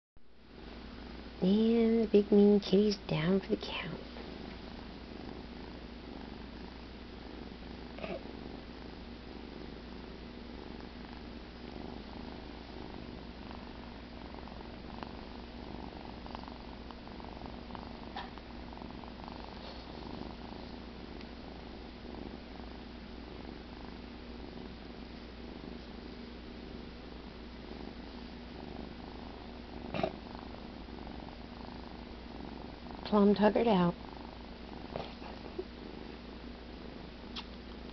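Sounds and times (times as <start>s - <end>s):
kitten purring: 0.4s - 37.9s
faint clicks: 37.3s - 37.9s.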